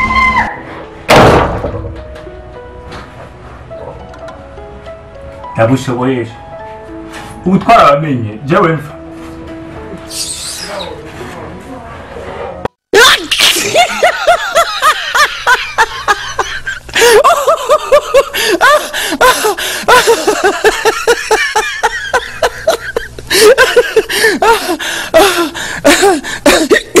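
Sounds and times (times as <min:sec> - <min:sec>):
person laughing: 0:13.0 - 0:27.0.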